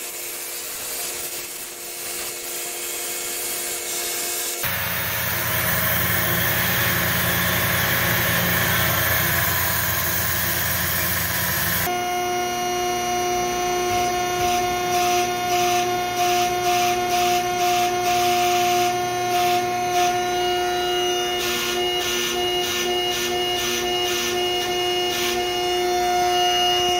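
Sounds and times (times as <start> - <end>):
cutting table hissing: 3.6 - 11.9
bending machine humming: 4.6 - 11.9
rhythmic pulsing: 4.6 - 11.9.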